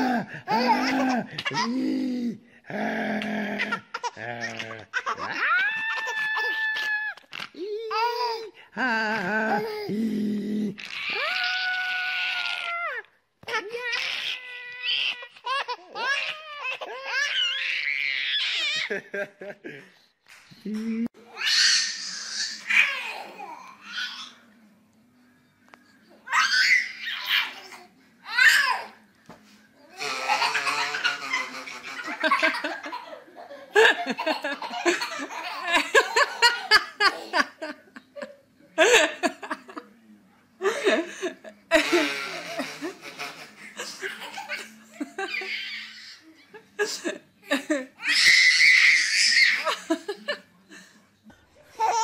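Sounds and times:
baby laughing: 0:00.1 - 0:01.8, 0:03.6 - 0:08.5.

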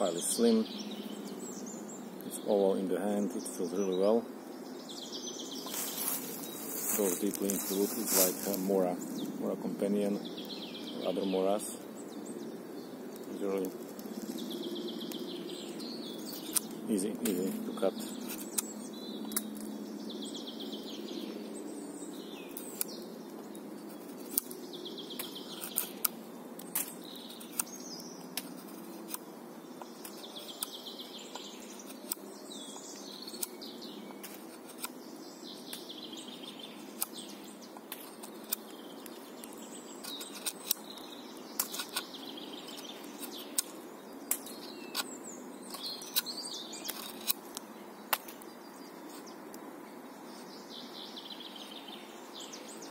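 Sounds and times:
songbird singing: 0:00.0 - 0:52.9
knife shaving wood: 0:25.2 - 0:27.8, 0:28.4 - 0:29.2, 0:37.8 - 0:42.1, 0:45.7 - 0:47.5.

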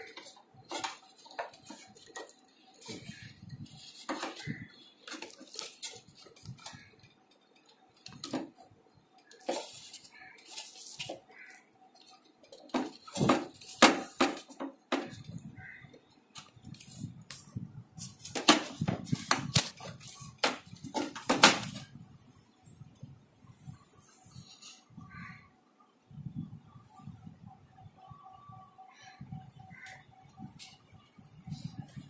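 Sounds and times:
clicks and knocks on sheet metal: 0:12.0 - 0:15.4, 0:18.2 - 0:21.8.

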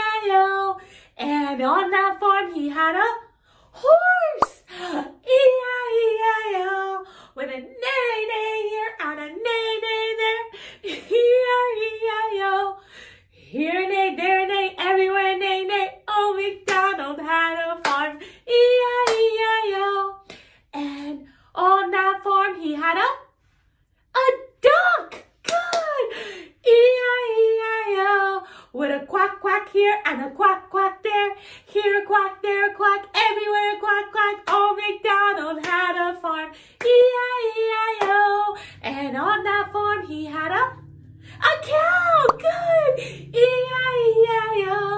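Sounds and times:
woman singing unaccompanied: 0:00.0 - 0:03.2, 0:03.8 - 0:12.8, 0:13.5 - 0:20.2, 0:20.8 - 0:23.2, 0:24.2 - 0:44.9.

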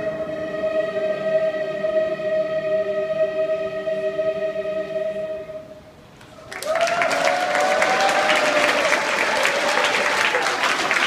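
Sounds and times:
audience applause: 0:06.3 - 0:11.0.

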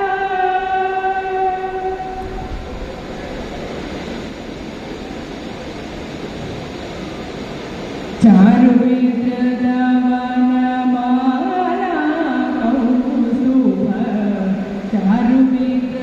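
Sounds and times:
woman singing unaccompanied: 0:00.0 - 0:02.5, 0:08.2 - 0:16.0
steady background noise: 0:00.0 - 0:16.0.

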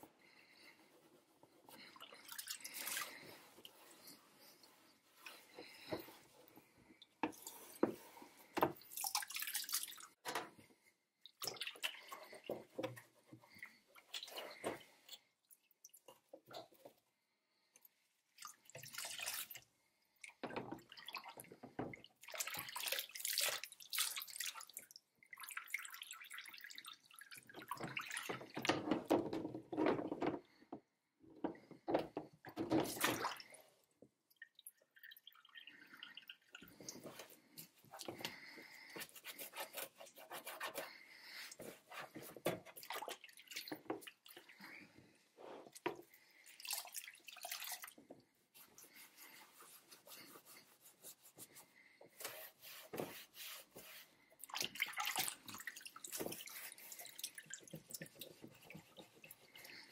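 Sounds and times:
water splashing and dripping: 0:32.7 - 0:33.6, 0:45.8 - 0:48.1, 0:54.4 - 0:59.9
cloth scrubbing plastic: 0:46.5 - 0:59.9.

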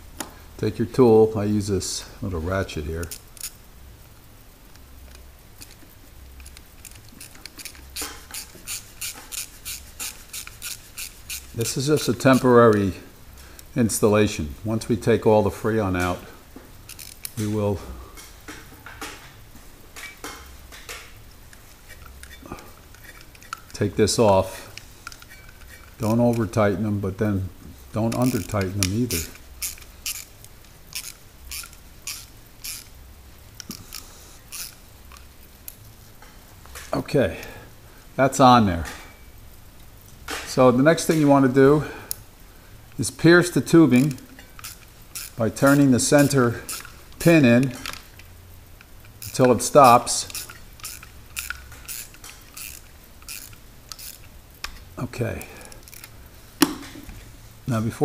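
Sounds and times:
hand ratchet clicking: 0:03.0 - 0:03.6, 0:06.4 - 0:12.9, 0:16.8 - 0:17.6, 0:19.9 - 0:26.6, 0:28.0 - 0:33.0, 0:33.6 - 0:35.8, 0:42.9 - 0:56.8.

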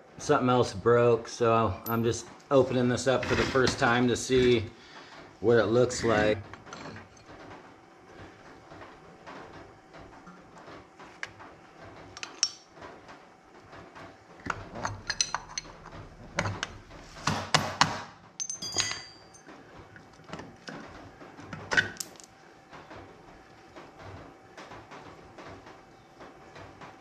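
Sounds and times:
metal parts clinking and knocking: 0:12.2 - 0:12.6, 0:14.4 - 0:17.0, 0:18.4 - 0:19.6.

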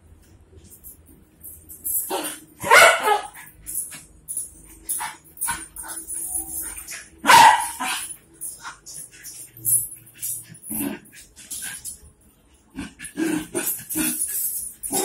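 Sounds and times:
metal chain rattling: 0:00.6 - 0:15.0
dogs barking: 0:02.1 - 0:03.8, 0:04.9 - 0:10.9.

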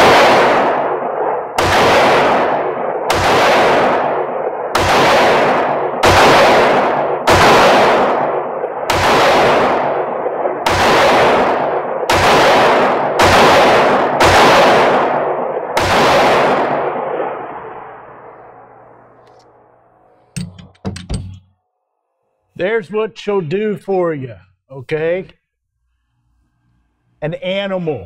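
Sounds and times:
pistol shots echoing indoors: 0:00.0 - 0:20.6.

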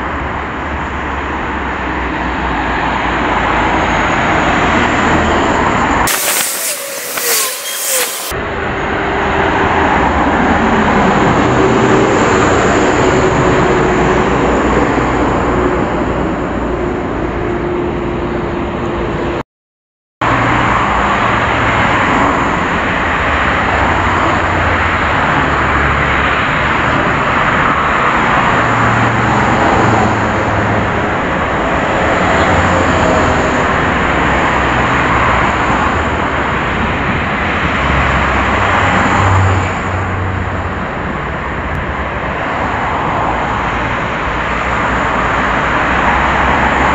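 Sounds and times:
street traffic rushing hiss: 0:06.1 - 0:08.8.

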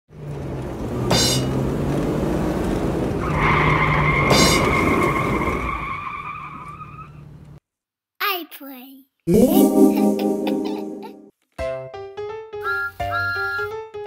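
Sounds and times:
car engine humming: 0:00.1 - 0:07.6
high tyre squeal: 0:01.0 - 0:01.8, 0:03.1 - 0:07.4.

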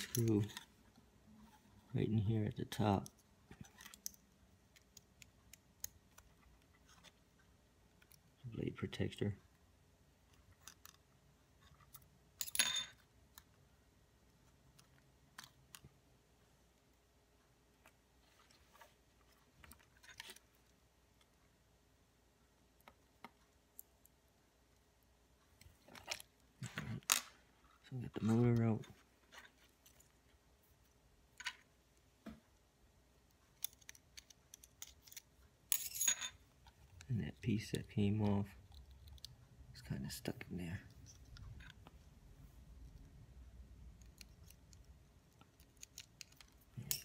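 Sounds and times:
screwdriver clattering on tiles: 0:33.6 - 0:36.4.

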